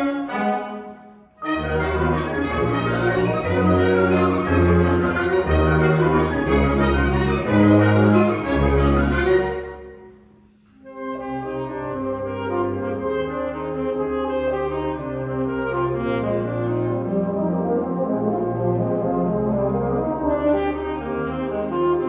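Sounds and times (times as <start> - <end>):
wind band playing: 0.0 - 22.0.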